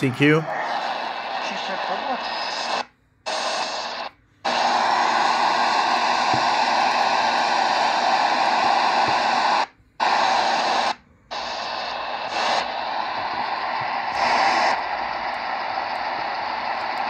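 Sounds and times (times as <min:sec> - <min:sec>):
radio static hiss: 0:00.0 - 0:17.0.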